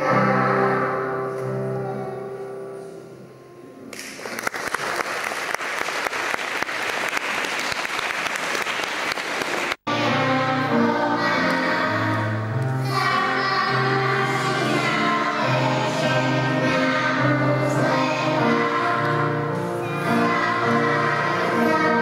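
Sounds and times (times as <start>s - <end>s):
children singing folk song: 0.0s - 2.3s, 9.9s - 22.0s.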